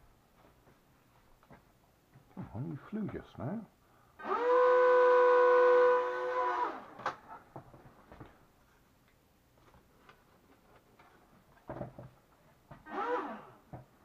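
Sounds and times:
electric propeller motors whining: 4.2 - 7.0, 12.9 - 13.6.

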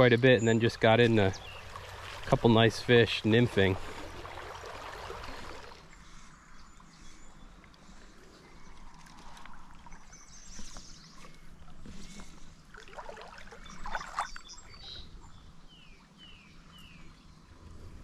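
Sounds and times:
creek water splashing: 0.0 - 6.3, 7.6 - 16.7
bird chirping: 0.3 - 1.7, 13.6 - 17.4.

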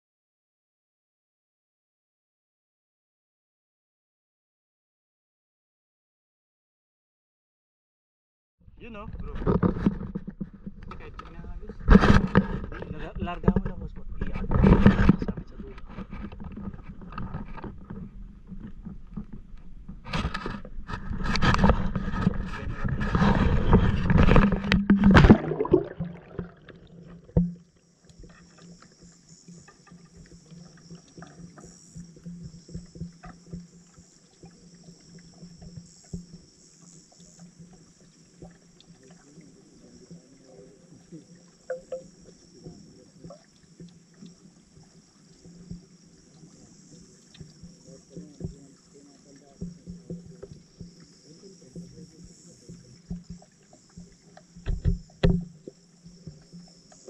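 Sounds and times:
muffled underwater hum: 8.7 - 57.0
faint underwater ticks: 8.9 - 57.0
camera splashing into water: 20.2 - 27.3.

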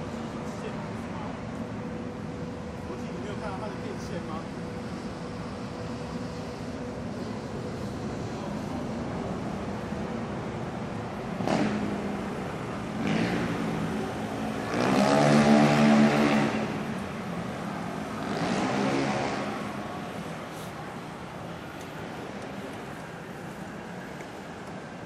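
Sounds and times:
traffic hum: 0.0 - 25.0
motor scooters passing: 11.4 - 24.6.

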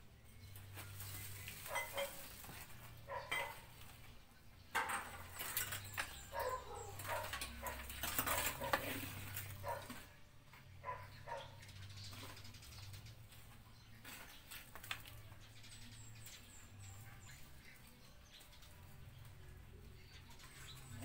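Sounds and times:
dog barking: 1.7 - 2.2, 3.0 - 3.7, 6.3 - 10.1, 10.8 - 11.6.

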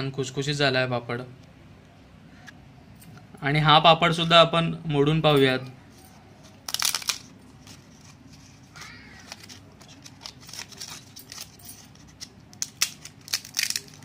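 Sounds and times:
papad snapping and cracking: 12.2 - 14.0.

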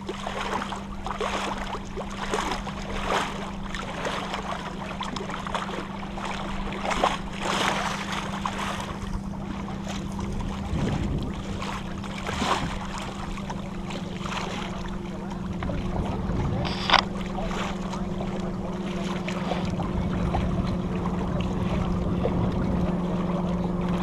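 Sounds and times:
steady low hum: 0.0 - 24.0
water washing along hull: 0.0 - 24.0
wind buffeting microphone: 8.8 - 13.5, 15.0 - 24.0.

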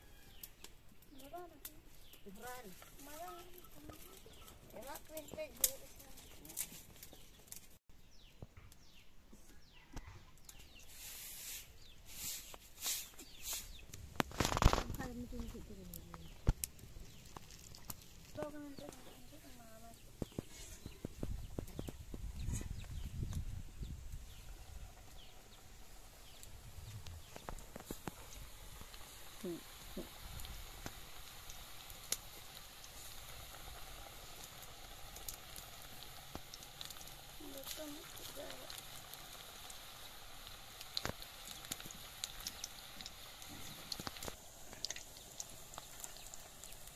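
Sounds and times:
hot oil sizzling and crackling: 0.0 - 7.8, 10.4 - 46.9
birds chirping: 0.2 - 10.9, 18.4 - 28.5
oil popping: 12.5 - 46.9.

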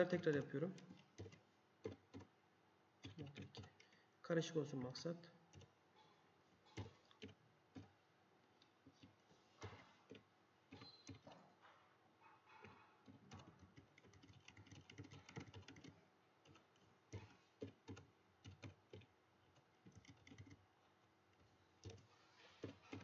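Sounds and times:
typing on computer keyboard: 0.0 - 2.3, 3.0 - 4.1, 5.5 - 5.8, 6.7 - 7.9, 8.8 - 11.4, 12.5 - 20.6, 21.3 - 23.0.

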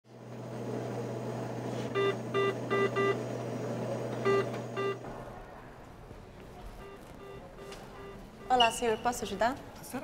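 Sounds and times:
short electronic beeps: 2.0 - 3.2, 4.2 - 5.0, 6.8 - 9.2.

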